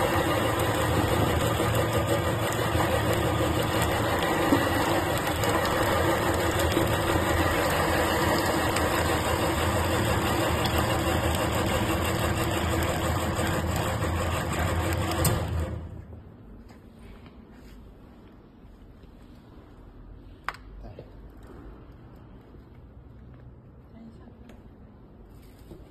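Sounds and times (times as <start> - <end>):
meat grinder running: 0.0 - 16.0.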